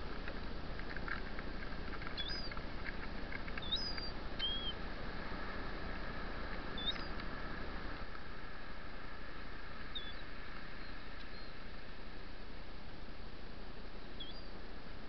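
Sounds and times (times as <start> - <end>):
faint soft ticks: 0.0 - 4.7, 5.9 - 7.4, 10.0 - 11.9
surf washing: 0.0 - 15.0
shorebirds chirping: 1.0 - 4.9, 6.7 - 7.2, 9.8 - 11.6.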